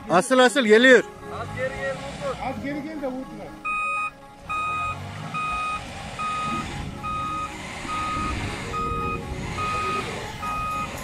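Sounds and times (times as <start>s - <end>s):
truck engine rumble: 0.9s - 11.0s
reversing beeper beeping: 3.6s - 11.0s.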